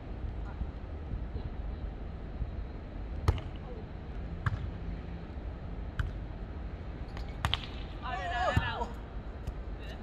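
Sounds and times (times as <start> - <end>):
volleyball being hit: 7.2 - 7.8.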